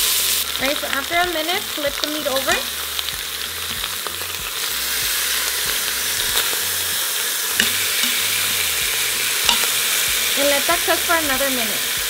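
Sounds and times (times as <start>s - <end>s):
meat sizzling in oil: 0.0s - 12.0s
metal tongs clicking: 7.6s - 8.2s, 9.5s - 9.8s.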